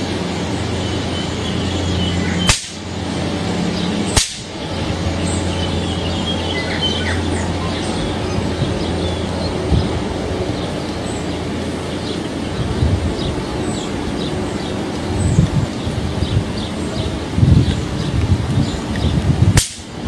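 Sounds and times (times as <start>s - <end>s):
birds chirping faintly: 0.0s - 20.0s
steady low hum: 0.0s - 20.0s
sharp electric cracks: 2.4s - 2.9s, 4.1s - 4.6s, 19.5s - 20.0s.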